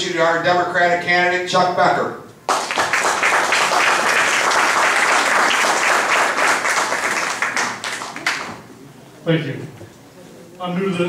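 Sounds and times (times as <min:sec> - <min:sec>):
audience applauding: 0:02.5 - 0:08.7.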